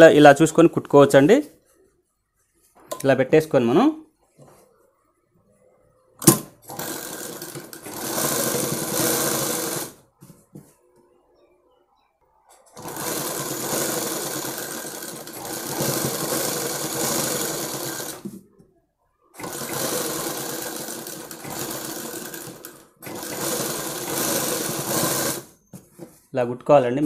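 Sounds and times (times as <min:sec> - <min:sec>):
sewing machine stitching: 0:06.2 - 0:10.0, 0:12.7 - 0:18.3, 0:19.4 - 0:25.6.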